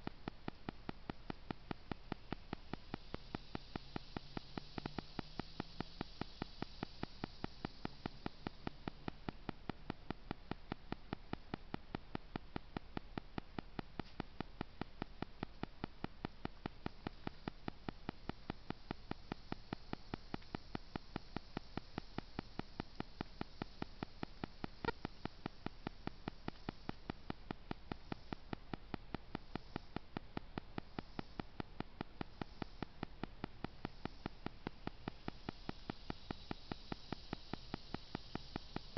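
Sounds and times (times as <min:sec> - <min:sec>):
even ticking: 0:00.0 - 0:38.9
faint recorder hiss: 0:00.0 - 0:38.9.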